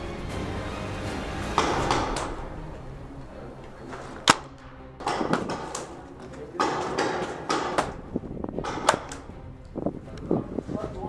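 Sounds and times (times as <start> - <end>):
paintball marker shots: 1.6 - 2.4, 4.2 - 6.0, 6.6 - 9.3.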